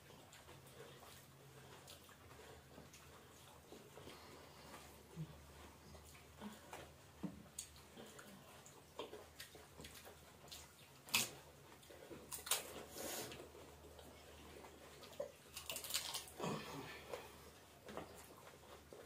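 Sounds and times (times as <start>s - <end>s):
crisp shells crunching: 15.5s - 16.5s.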